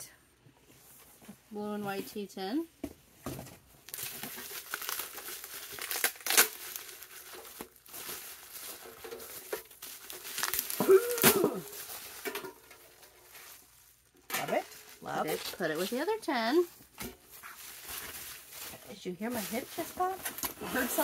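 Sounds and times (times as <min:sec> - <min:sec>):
packing material crinkling and tearing: 0:03.8 - 0:21.0
short voiced sound: 0:10.8 - 0:11.8.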